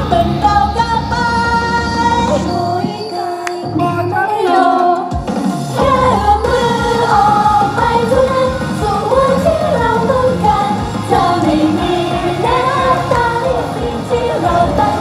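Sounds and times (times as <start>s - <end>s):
women singing into microphones: 0.0s - 5.2s, 5.8s - 15.0s
recorded pop backing track: 0.0s - 15.0s.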